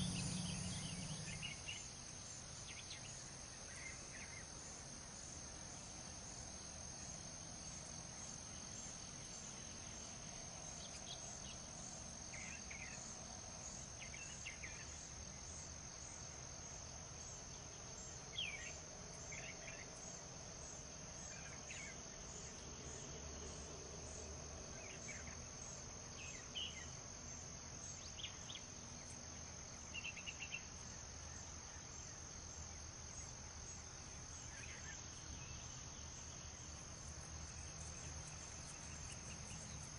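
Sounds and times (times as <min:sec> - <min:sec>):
low background rumble: 0:00.0 - 0:02.1
crickets trilling: 0:00.0 - 0:39.9.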